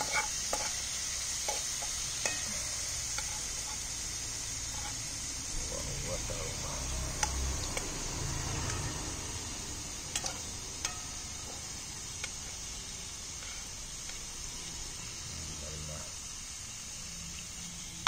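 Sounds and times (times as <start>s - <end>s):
steak sizzling in a wok: 0.0s - 18.0s
metal tongs clicking on pan: 1.5s - 3.8s, 7.1s - 7.9s, 10.1s - 11.2s.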